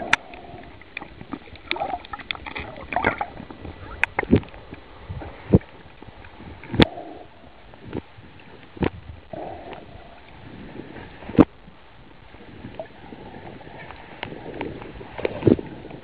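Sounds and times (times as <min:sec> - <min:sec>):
muffled underwater hiss: 0:00.0 - 0:16.0
sharp knocks underwater: 0:01.0 - 0:04.6.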